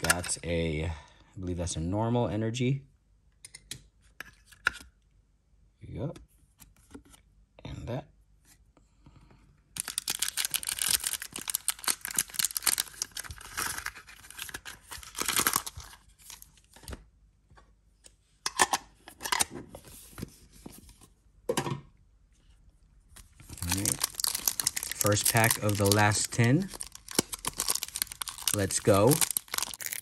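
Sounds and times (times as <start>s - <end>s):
foil wrapper crinkling: 9.8s - 16.5s, 23.4s - 30.0s.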